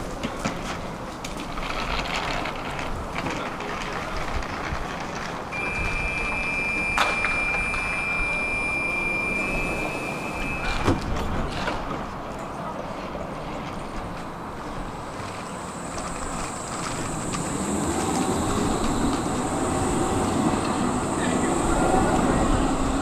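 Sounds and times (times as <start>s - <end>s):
tram rumbling: 0.0s - 23.0s
high-pitched tone: 5.6s - 11.0s.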